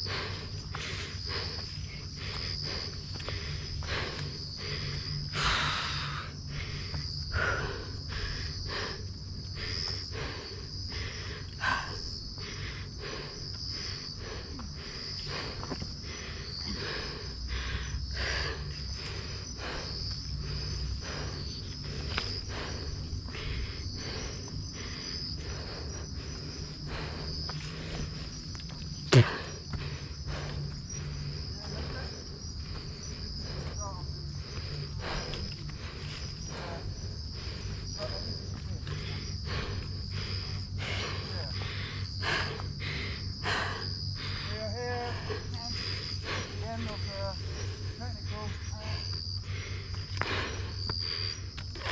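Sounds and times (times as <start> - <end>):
footsteps on leafy dirt trail: 0.0 - 4.8
night insects chirring: 0.0 - 51.9.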